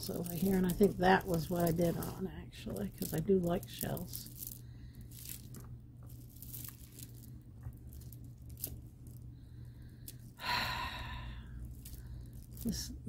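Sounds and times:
wooden and glass beads clicking: 0:00.0 - 0:09.3
low steady hum: 0:00.0 - 0:13.0.

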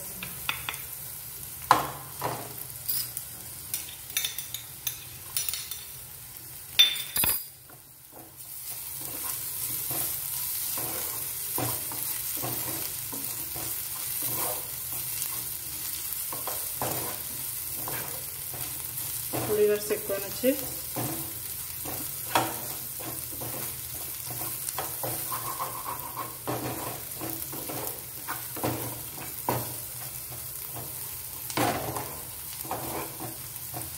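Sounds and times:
onions sizzling in oil: 0:00.0 - 0:33.9
spatula scraping and knocking pan: 0:07.7 - 0:33.9.

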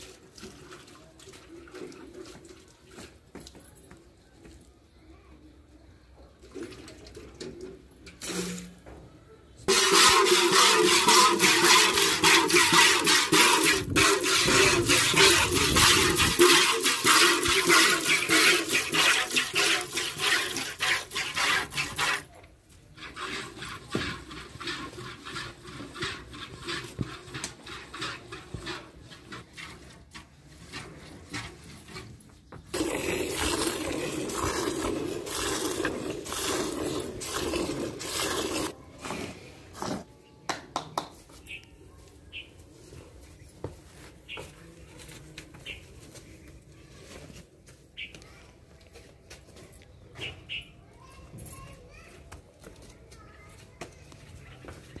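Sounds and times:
milk squirting into metal bucket: 0:00.0 - 0:03.2, 0:06.4 - 0:08.8, 0:09.7 - 0:32.0, 0:32.7 - 0:38.8.

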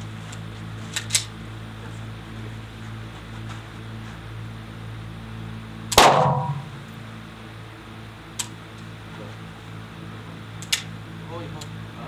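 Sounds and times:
steady hum: 0:00.0 - 0:12.0
pistol shot ringing: 0:05.9 - 0:06.8.

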